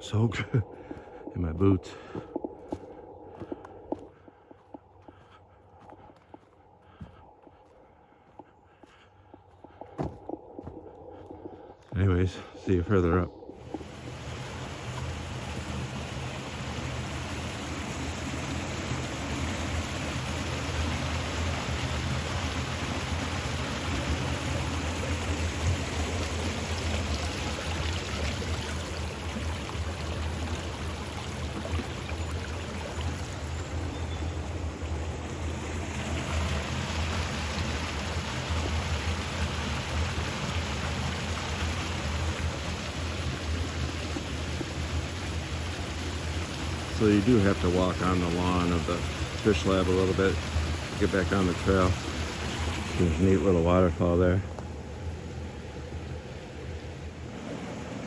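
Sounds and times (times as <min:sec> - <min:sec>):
stream rushing over stones: 0:12.0 - 0:58.0.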